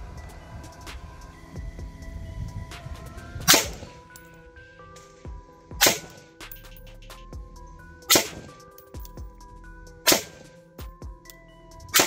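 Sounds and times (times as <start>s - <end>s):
background music: 0.0s - 12.0s
rifle shots: 5.8s - 6.2s, 8.1s - 8.6s, 10.1s - 10.5s.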